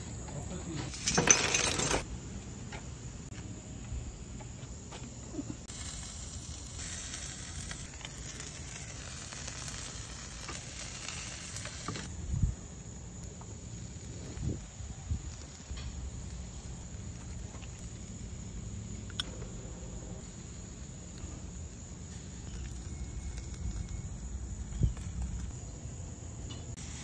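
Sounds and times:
sausages sizzling over charcoal: 0:05.3 - 0:19.2, 0:20.2 - 0:26.0, 0:26.6 - 0:27.0.

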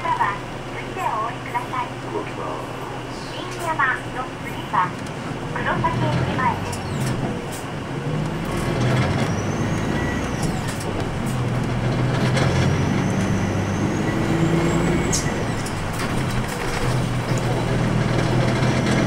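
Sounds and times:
bus diesel engine drone: 0:00.0 - 0:19.0
knocks and rattles: 0:15.6 - 0:19.0.

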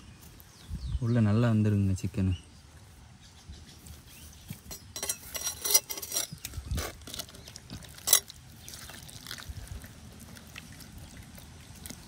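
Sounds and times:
clinks and scrapes on clay pot: 0:04.6 - 0:08.4.

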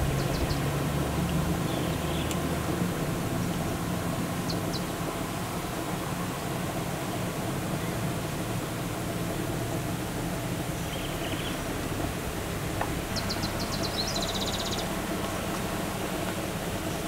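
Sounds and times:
bird calls: 0:00.0 - 0:00.7, 0:04.4 - 0:04.9, 0:10.8 - 0:11.6, 0:13.1 - 0:15.0
vehicle engine idling: 0:00.0 - 0:17.0.

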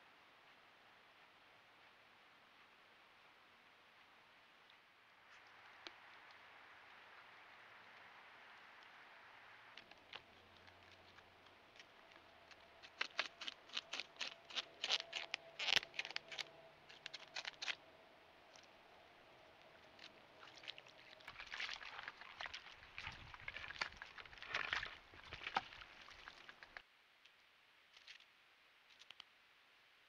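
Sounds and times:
beaver gnawing bark: 0:09.8 - 0:26.8.

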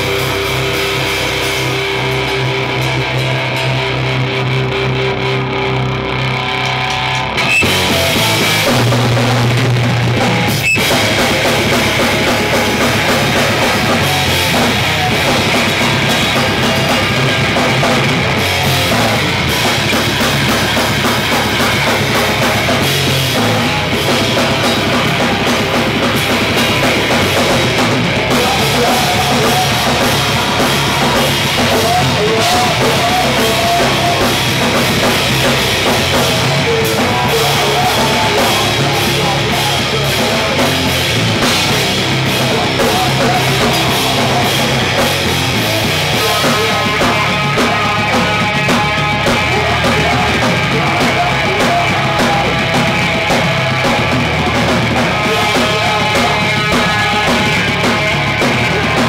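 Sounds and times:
bass guitar: 0:00.0 - 0:59.0
distorted electric guitars: 0:00.0 - 0:59.0
fast drum kit: 0:00.0 - 0:59.0
shouted vocals: 0:06.4 - 0:59.0.

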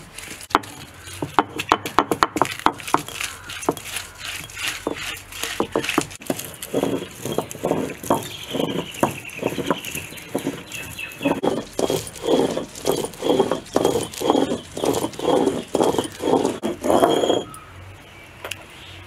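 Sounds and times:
stone roller grinding on slab: 0:00.0 - 0:17.6
bird chirping: 0:02.9 - 0:19.0.

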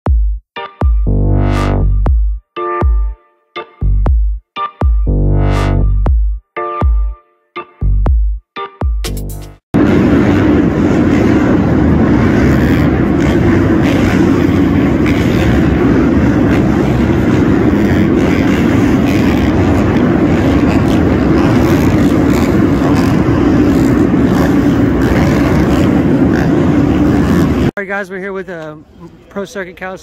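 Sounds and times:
dirt bike engines droning: 0:09.8 - 0:27.9.

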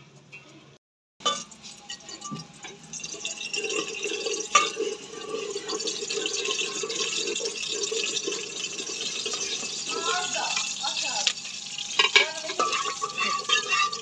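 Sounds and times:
metal ladle clink: 0:01.2 - 0:07.7, 0:08.9 - 0:14.0
oil trickling between pots: 0:01.2 - 0:14.0.

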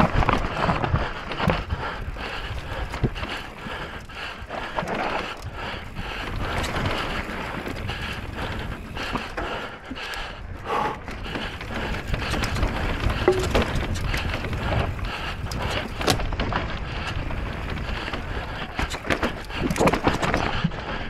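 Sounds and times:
tyres on rock and gravel: 0:11.1 - 0:20.6
bike rattling knocks: 0:11.3 - 0:14.9.

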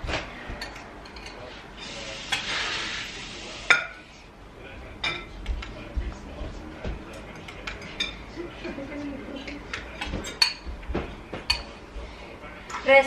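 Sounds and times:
cutlery clinking on plates: 0:00.0 - 0:02.5, 0:05.0 - 0:05.8, 0:06.8 - 0:08.4, 0:09.4 - 0:11.8.

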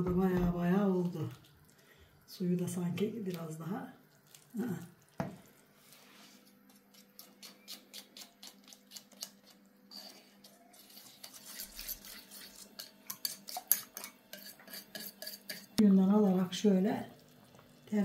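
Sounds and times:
spoon stirring and scraping pot: 0:05.8 - 0:15.9.

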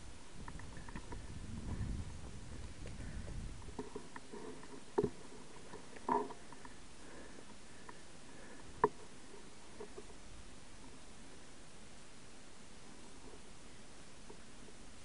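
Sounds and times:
bike rolling on gravel: 0:00.4 - 0:07.3.

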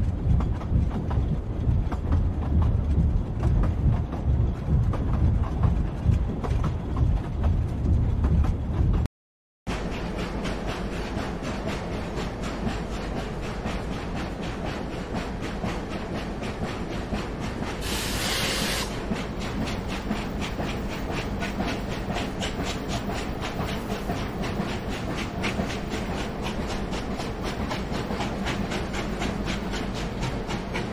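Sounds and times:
steam train running: 0:09.7 - 0:30.9
steam hiss: 0:17.8 - 0:19.0.

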